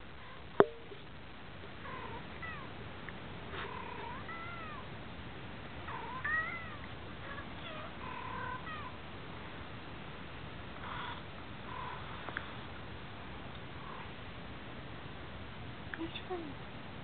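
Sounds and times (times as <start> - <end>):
cats meowing through speakers: 4.0 - 4.9.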